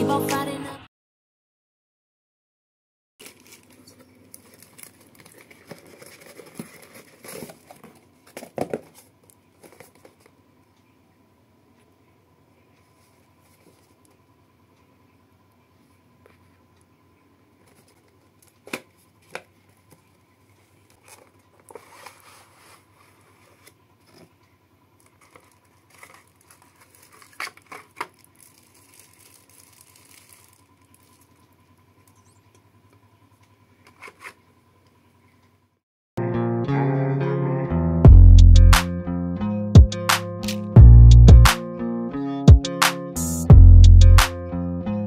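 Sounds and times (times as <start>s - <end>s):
plastic bag rustling: 3.2s - 10.3s, 20.7s - 24.3s, 25.0s - 31.6s
guitar music: 36.2s - 45.0s.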